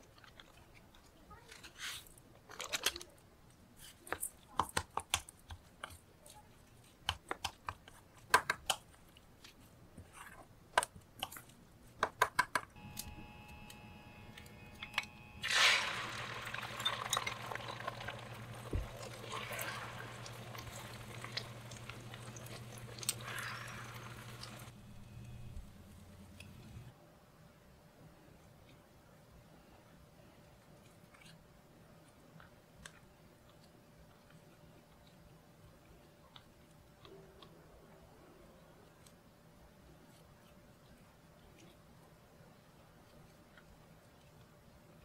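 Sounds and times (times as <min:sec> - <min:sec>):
low steady hum: 0:12.8 - 0:30.9
egg sizzling in a frying pan: 0:15.4 - 0:24.8.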